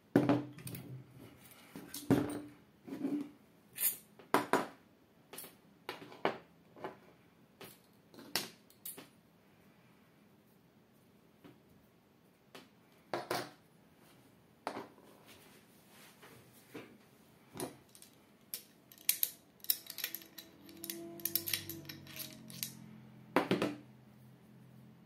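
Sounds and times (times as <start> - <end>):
rifle parts clicking and clinking: 17.6 - 22.8.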